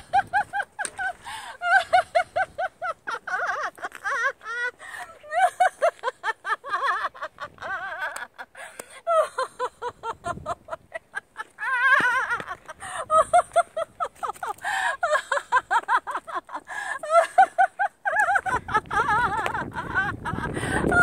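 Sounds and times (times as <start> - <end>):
woman laughing: 0.0 - 21.0.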